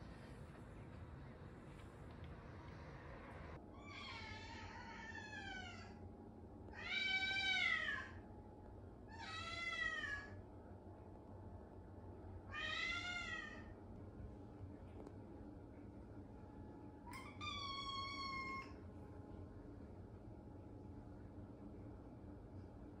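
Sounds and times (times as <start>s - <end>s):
cat meowing: 6.7s - 8.2s, 12.5s - 13.7s, 17.3s - 18.8s.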